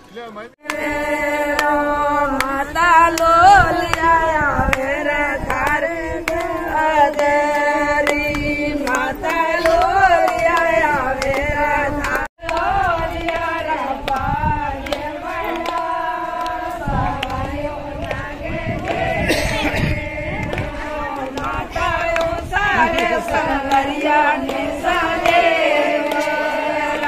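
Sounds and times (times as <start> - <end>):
women singing together: 0.6 - 27.0
hands clapping: 7.1 - 16.6, 20.4 - 27.0.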